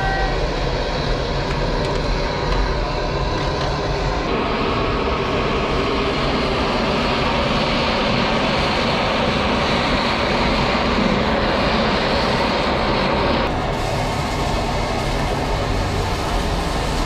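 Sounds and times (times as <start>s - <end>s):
gas torch flame rushing: 3.4s - 17.0s.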